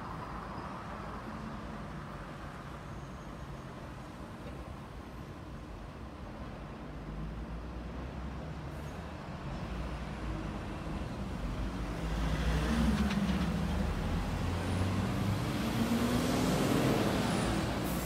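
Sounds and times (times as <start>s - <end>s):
low traffic rumble: 4.7s - 18.0s
heavy vehicle engine passing: 11.9s - 18.0s.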